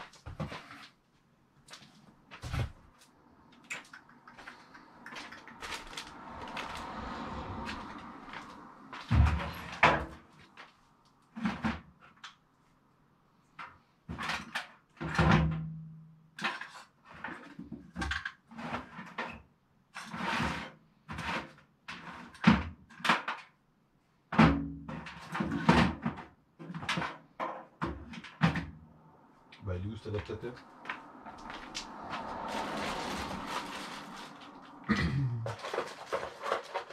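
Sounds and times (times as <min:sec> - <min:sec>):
rummaging small hard objects: 0:04.3 - 0:07.0, 0:31.4 - 0:36.9.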